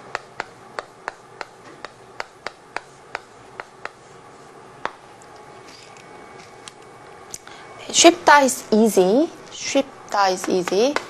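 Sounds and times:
chalk tapping on a chalkboard: 0:00.0 - 0:05.0.

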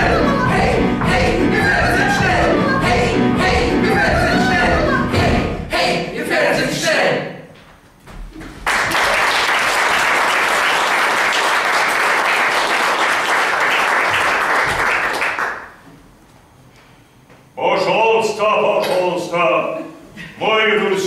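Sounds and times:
audience applauding: 0:08.6 - 0:15.8.

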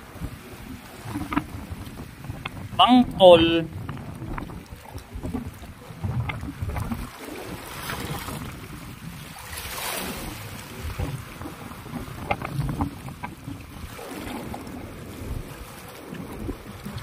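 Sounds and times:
waves washing against rocks: 0:00.0 - 0:17.0
wind buffeting microphone: 0:00.0 - 0:17.0.

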